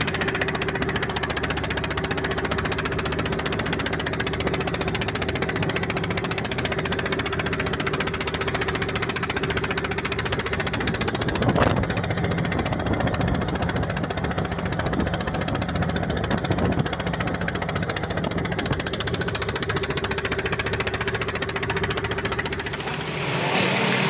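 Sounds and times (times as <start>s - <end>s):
boat engine running: 0.0s - 24.0s
water rushing along hull: 0.0s - 24.0s.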